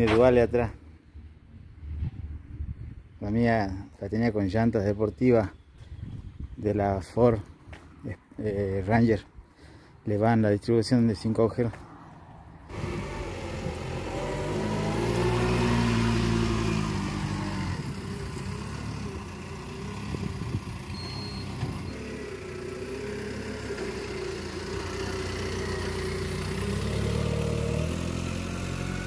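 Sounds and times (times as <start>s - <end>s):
forklift engine revving: 12.7s - 29.0s
short high beep: 20.9s - 22.1s.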